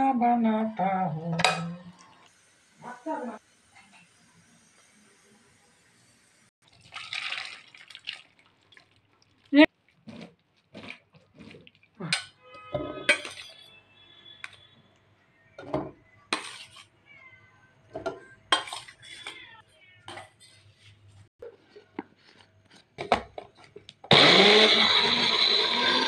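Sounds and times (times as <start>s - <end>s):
metal spoon clinking steel bowl: 12.2s - 13.8s
blender grinding vegetables: 24.1s - 26.0s.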